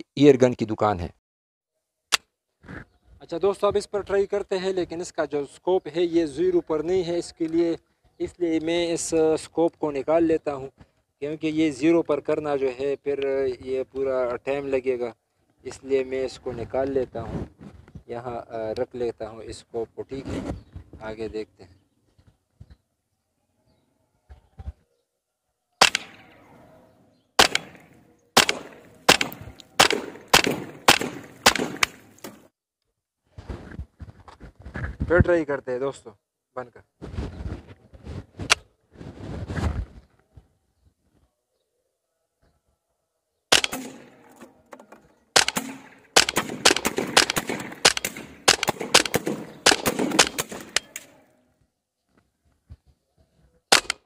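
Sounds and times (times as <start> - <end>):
air rifle shots: 25.8 - 26.6, 27.4 - 32.5, 43.5 - 44.5, 45.3 - 51.2, 53.7 - 54.0.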